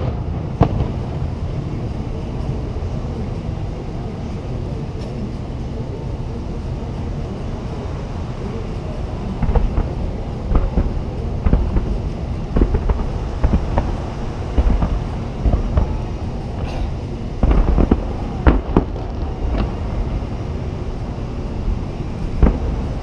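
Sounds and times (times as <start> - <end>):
fireworks bangs and pops: 0.0 - 2.8, 8.5 - 23.0
low rumble: 0.0 - 23.0.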